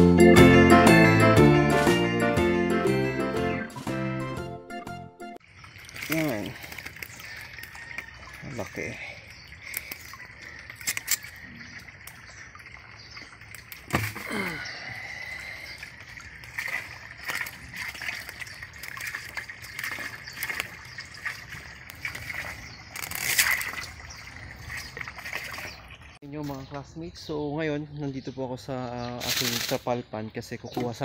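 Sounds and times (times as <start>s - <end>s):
fish thrashing in shallow water: 5.4s - 26.2s.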